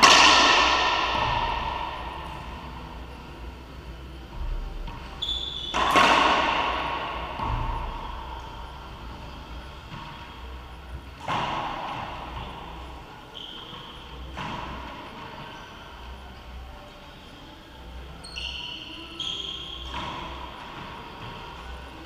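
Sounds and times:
racquetball hits echoing: 0.0s - 15.9s, 18.4s - 22.0s
sneaker squeaks on court floor: 4.4s - 17.5s, 18.1s - 22.0s.

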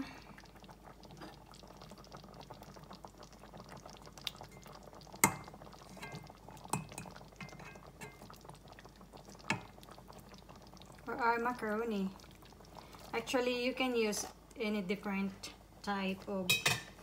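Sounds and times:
soup bubbling in pot: 0.0s - 17.0s
metal taps on pot: 5.2s - 8.2s, 16.5s - 16.9s.

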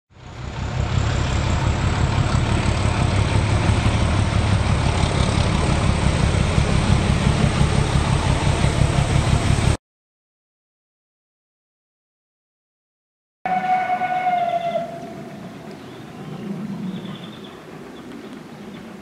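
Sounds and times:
train rumbling: 0.1s - 9.8s, 13.5s - 19.0s.

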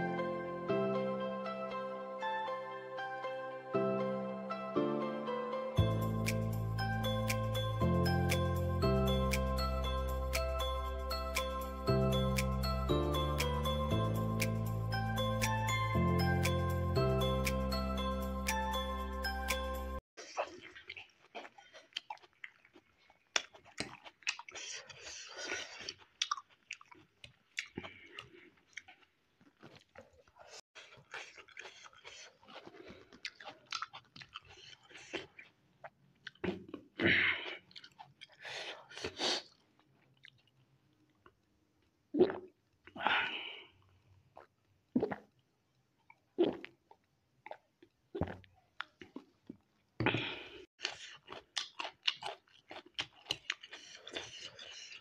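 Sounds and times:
close chewing and smacking: 20.2s - 43.0s, 43.8s - 50.0s, 50.7s - 55.0s
drinking from a glass: 45.0s - 45.3s, 48.2s - 48.5s.

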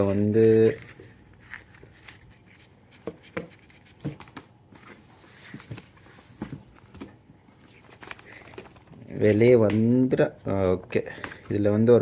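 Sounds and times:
paper rustling: 0.0s - 9.6s.

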